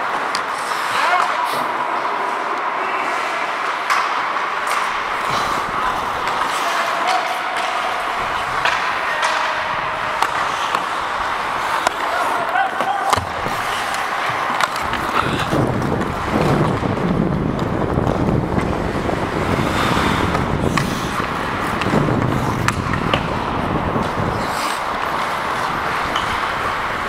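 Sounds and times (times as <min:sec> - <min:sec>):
skate blades scraping ice: 0:00.0 - 0:01.8, 0:03.0 - 0:27.0
air rushing over microphone: 0:14.9 - 0:27.0.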